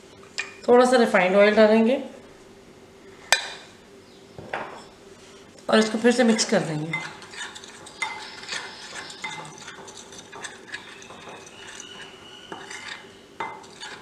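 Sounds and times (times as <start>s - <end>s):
spoon scraping glass bowl: 5.8s - 14.0s
spoon clinking against glass: 6.9s - 13.9s.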